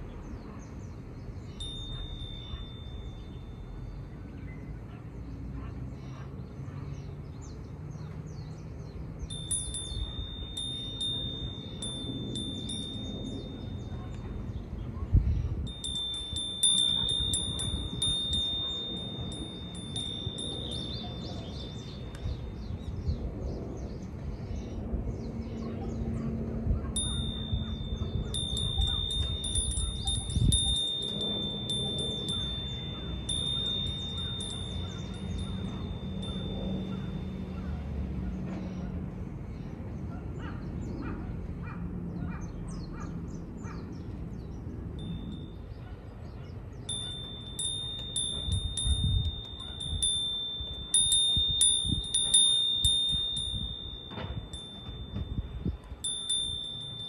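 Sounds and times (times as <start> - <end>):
wind chime ringing: 1.4 - 4.7, 9.2 - 14.8, 15.5 - 22.9, 27.0 - 38.2, 45.0 - 45.9, 46.8 - 57.0
wind buffeting microphone: 8.3 - 57.0.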